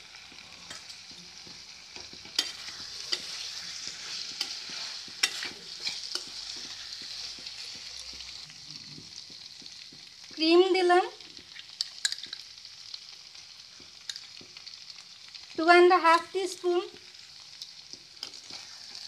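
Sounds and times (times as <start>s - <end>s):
vegetables sizzling in a wok: 0.0s - 19.0s
spatula scraping a pan: 0.6s - 8.2s, 18.2s - 19.0s.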